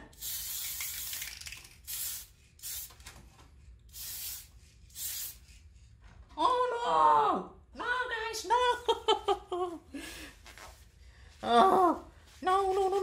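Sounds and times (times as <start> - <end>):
spray can hissing: 0.1 - 3.0, 3.9 - 5.4.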